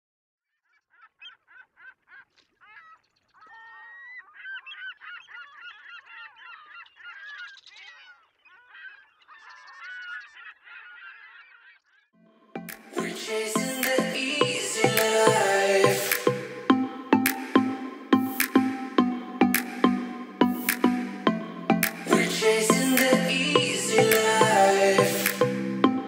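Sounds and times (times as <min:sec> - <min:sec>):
birds honking: 0:03.6 - 0:11.9
loud music: 0:12.6 - 0:26.0.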